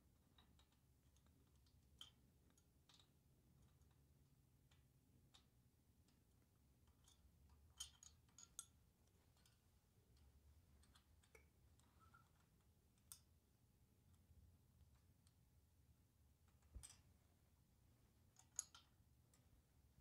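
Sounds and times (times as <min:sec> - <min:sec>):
metallic clicks of hand tools: 0:18.4 - 0:19.0.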